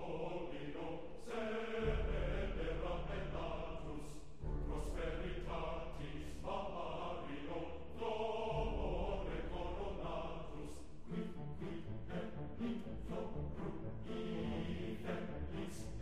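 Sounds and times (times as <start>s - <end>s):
choir singing sustained chords: 0.0s - 16.0s
deep bass note: 1.8s - 6.4s.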